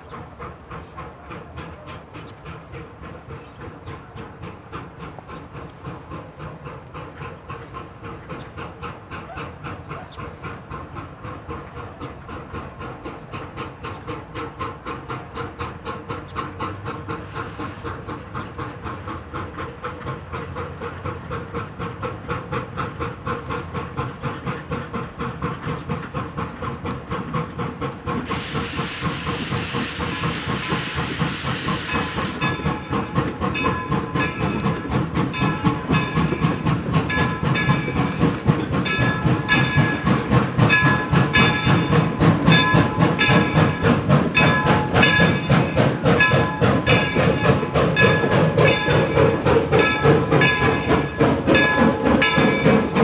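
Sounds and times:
steam locomotive chuffing: 0:00.0 - 0:53.0
loud steam hiss: 0:00.1 - 0:53.0.

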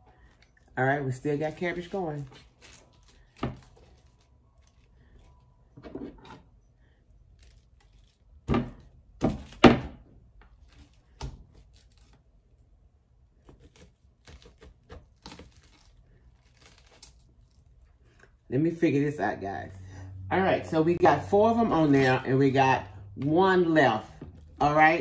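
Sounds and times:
knife crunching through cabbage: 0:01.6 - 0:05.4, 0:10.6 - 0:12.4, 0:13.4 - 0:18.3.

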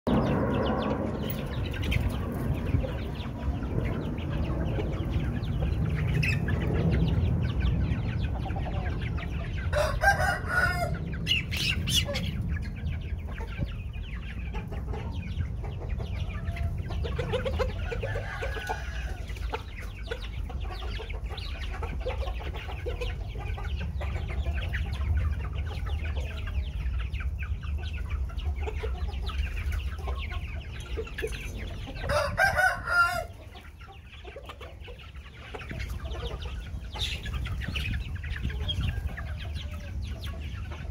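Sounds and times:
chickens clucking: 0:00.1 - 0:40.9
cockerel crowing: 0:09.7 - 0:11.0, 0:32.1 - 0:33.4.

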